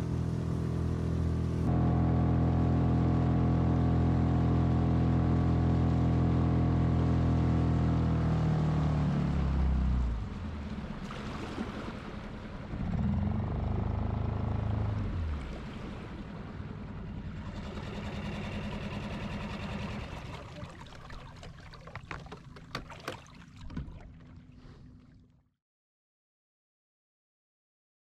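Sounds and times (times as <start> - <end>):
outboard motor running: 0.0 - 25.4.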